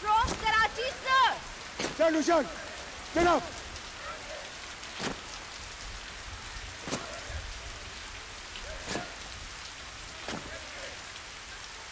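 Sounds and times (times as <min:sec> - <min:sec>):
raindrop taps: 0:00.0 - 0:11.9
steady rain falling: 0:00.0 - 0:11.9.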